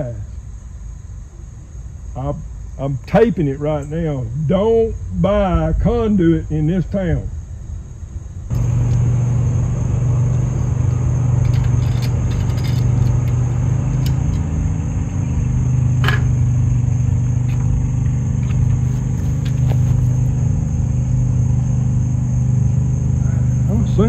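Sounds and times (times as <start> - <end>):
low engine-like hum: 0.0 - 24.0
electrical tape tearing: 18.7 - 20.2.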